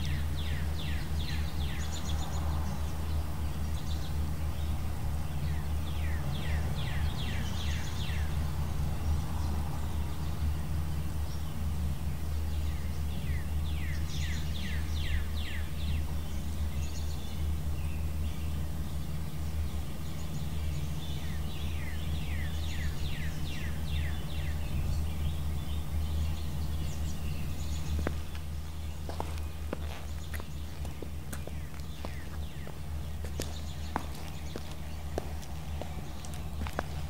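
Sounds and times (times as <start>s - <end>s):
low outdoor rumble: 0.0s - 37.0s
songbird whistling: 20.0s - 28.3s
footsteps: 27.9s - 37.0s.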